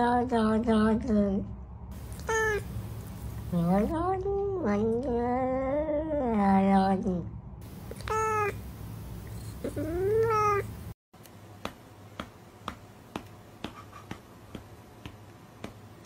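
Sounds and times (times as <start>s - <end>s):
cat meowing: 2.1s - 2.7s, 8.0s - 8.6s, 9.6s - 10.7s.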